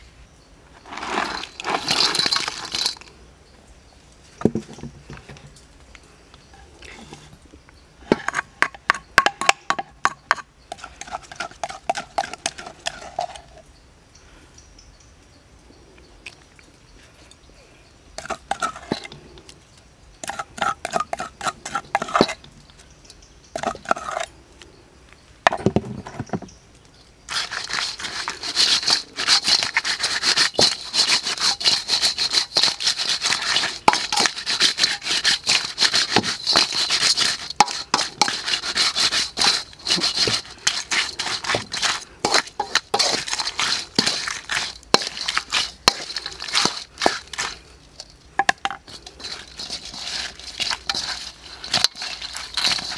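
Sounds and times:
spatula scraping wok: 0.8s - 3.1s, 8.0s - 13.6s, 18.2s - 19.2s, 20.2s - 22.4s, 23.6s - 24.3s, 27.3s - 52.9s.

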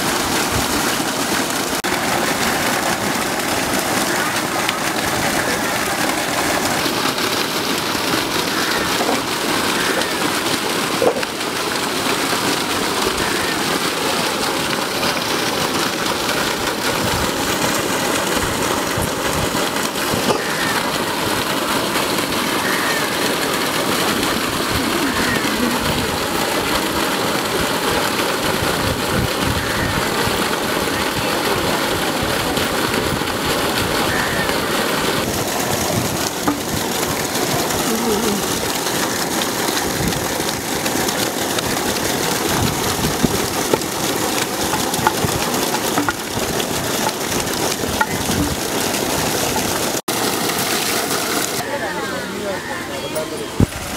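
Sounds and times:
water gushing from a pipe: 0.0s - 53.9s.

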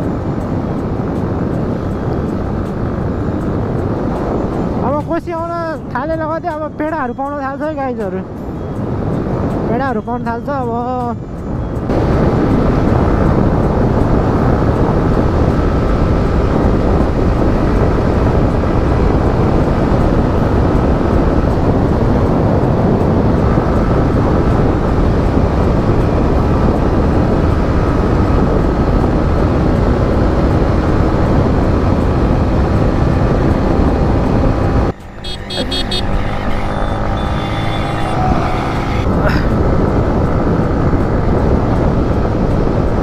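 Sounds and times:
wind on microphone: 0.0s - 43.0s
motorcycle engine running: 12.0s - 43.0s.

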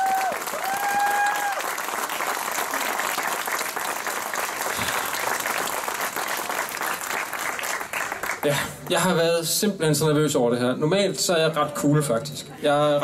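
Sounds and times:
crowd applauding: 0.0s - 9.1s.

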